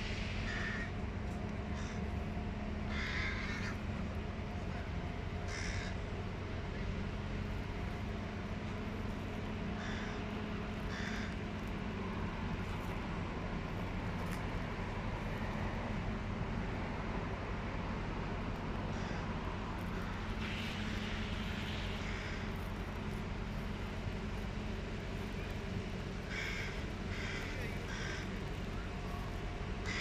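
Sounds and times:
steady low hum: 0.0s - 30.0s
crow fledglings begging caws: 0.4s - 1.0s, 1.6s - 2.2s, 2.8s - 7.0s, 9.5s - 11.7s, 18.9s - 20.4s, 22.0s - 22.6s, 26.1s - 28.8s, 29.8s - 30.0s.

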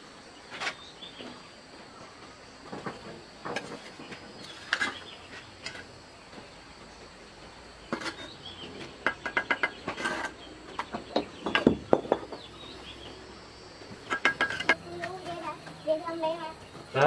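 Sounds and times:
hard objects clinking and knocking: 8.9s - 12.5s, 14.0s - 15.2s.

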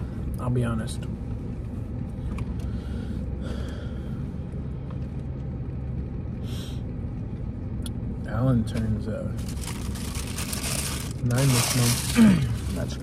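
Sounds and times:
car engine idling: 0.0s - 13.0s
soft rustle: 9.4s - 13.0s.

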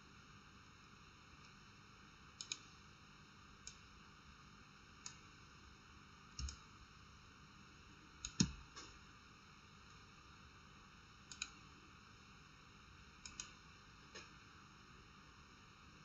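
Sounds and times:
faint steady hiss: 0.0s - 16.0s
mouse and keyboard clicks: 6.4s - 6.6s.

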